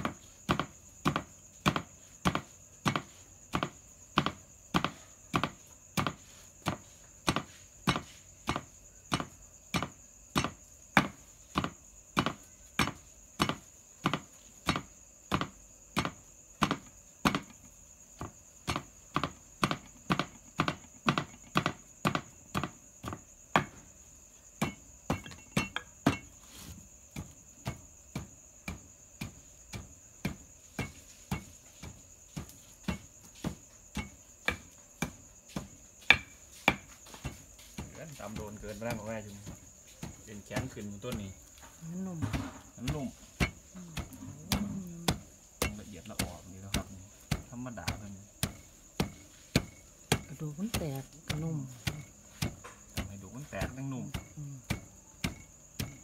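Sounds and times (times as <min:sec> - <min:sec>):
wooden pestle pounding clay mortar: 0:00.0 - 0:56.0.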